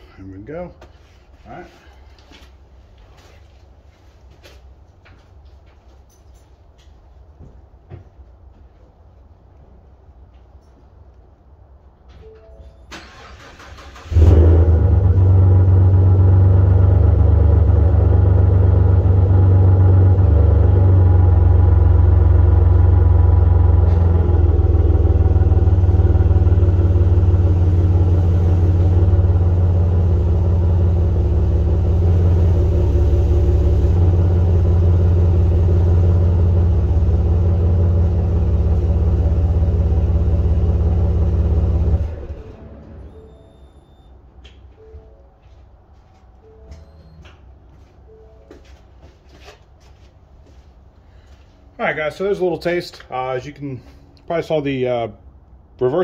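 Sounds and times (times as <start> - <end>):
pickup engine idling: 14.0 - 42.8.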